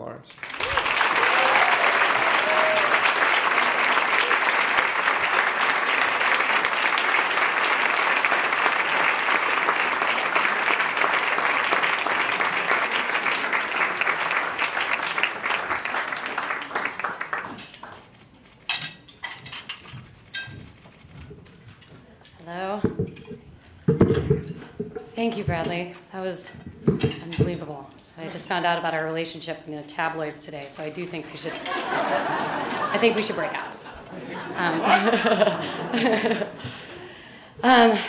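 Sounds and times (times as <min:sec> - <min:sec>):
audience applauding: 0:00.3 - 0:18.3, 0:31.6 - 0:37.2.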